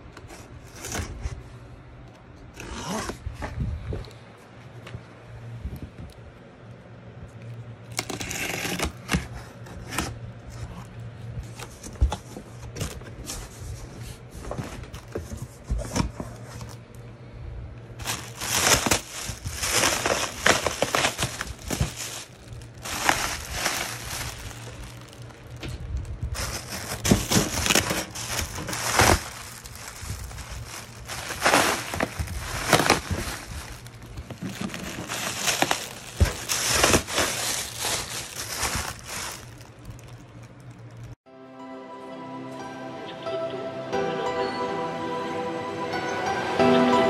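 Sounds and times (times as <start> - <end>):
steady low hum: 3.2 - 41.2
plastic wrap crinkling: 18.0 - 41.2
cardboard box opening: 26.4 - 30.4.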